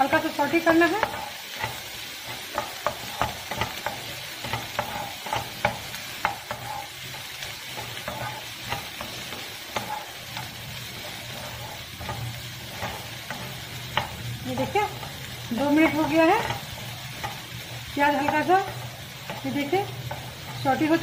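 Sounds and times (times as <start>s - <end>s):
onion sizzling: 0.0s - 21.0s
spatula scraping frying pan: 0.1s - 21.0s.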